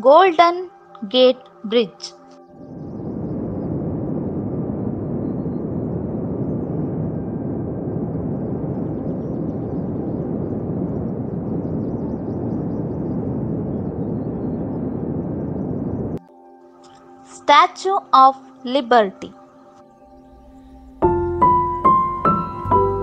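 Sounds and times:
steady rushing rumble: 2.4s - 16.3s, 20.1s - 23.0s.

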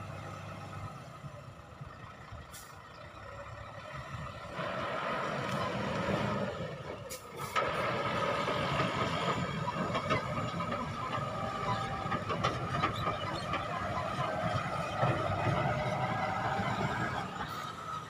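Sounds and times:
diesel truck engine: 0.0s - 18.0s
truck body rattling and clanking: 6.9s - 17.8s.

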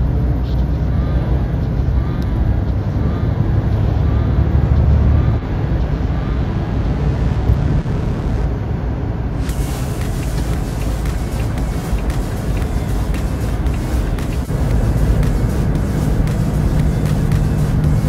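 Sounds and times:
lorry cab engine and tyre drone: 0.0s - 18.0s.

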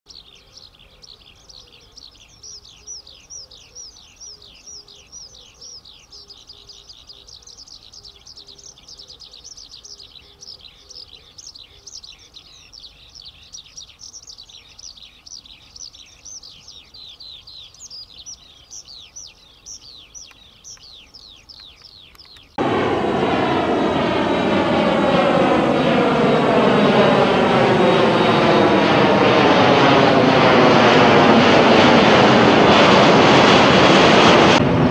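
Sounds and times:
bird chirping: 0.1s - 22.6s
jet airliner engines overhead: 0.1s - 34.9s.

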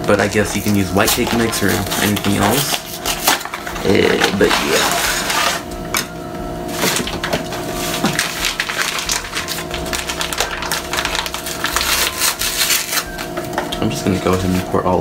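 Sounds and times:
plastic bag crinkling: 0.2s - 5.6s, 6.7s - 14.8s.

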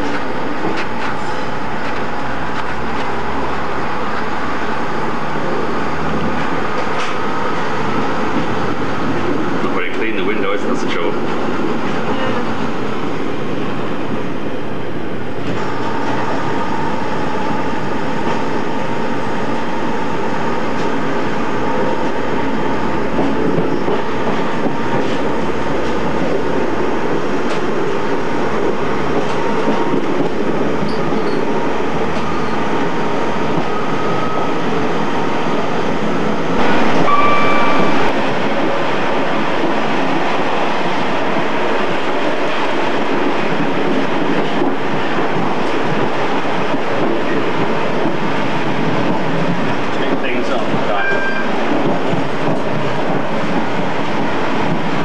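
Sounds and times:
train wheels rumbling on rails: 0.0s - 55.0s
loud tone: 36.6s - 38.1s.

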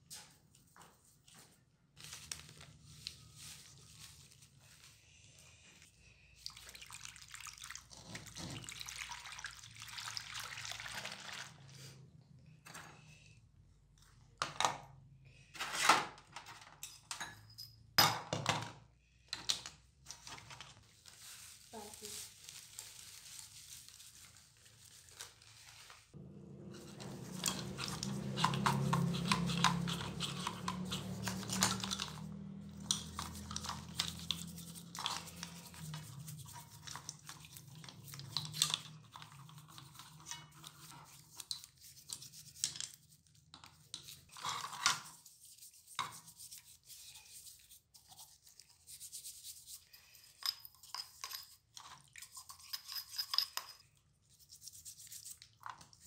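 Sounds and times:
brush scrubbing in soapy water: 26.6s - 50.3s, 54.3s - 56.0s.

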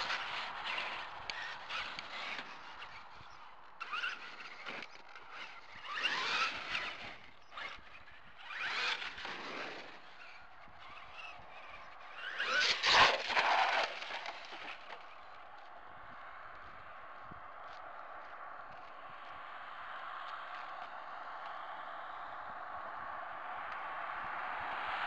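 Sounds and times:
rc truck motor whining: 0.0s - 15.3s
tyre noise on wet road: 0.0s - 16.6s.

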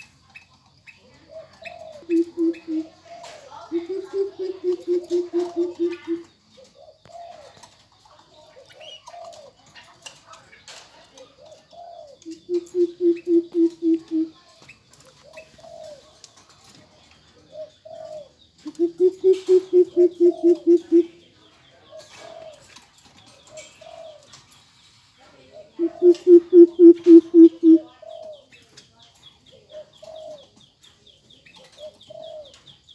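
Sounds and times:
bird hooting deep notes: 3.8s - 6.2s, 12.3s - 14.3s, 18.7s - 21.1s, 25.8s - 27.8s.

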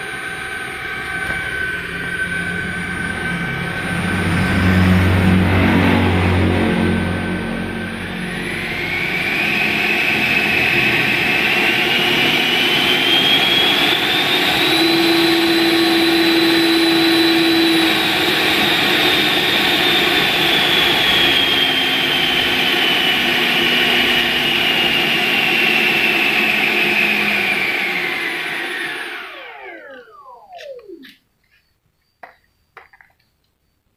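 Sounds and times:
electric ducted fan whine: 0.0s - 31.3s.

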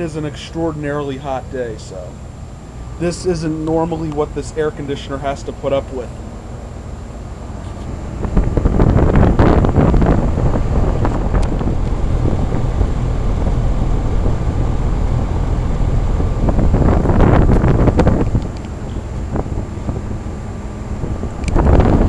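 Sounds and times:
air conditioner low hum: 0.0s - 22.0s
wind buffeting microphone: 7.4s - 22.0s.

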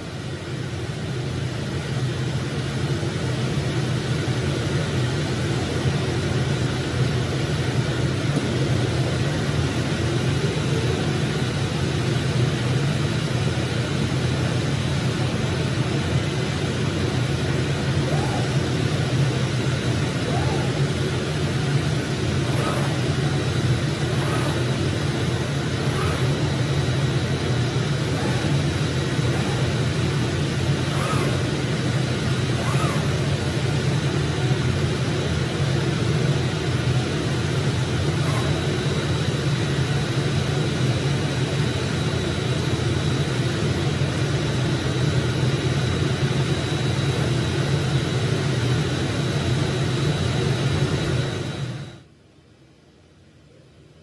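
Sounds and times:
cutting machine drone: 7.6s - 42.7s.

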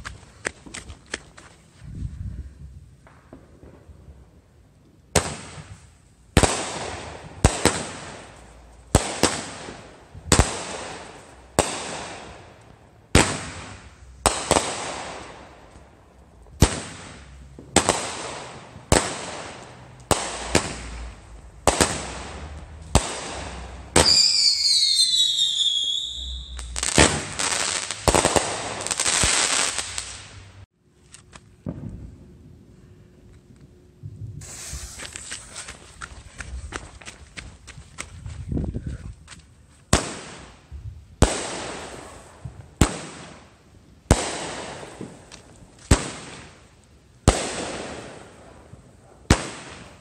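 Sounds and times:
firework bangs with hiss: 5.1s - 15.9s, 16.6s - 30.5s, 34.4s - 35.8s, 39.9s - 50.0s
dense firework crackling: 16.5s - 30.7s, 34.4s - 35.8s
firework whistles falling in pitch: 24.0s - 27.7s.

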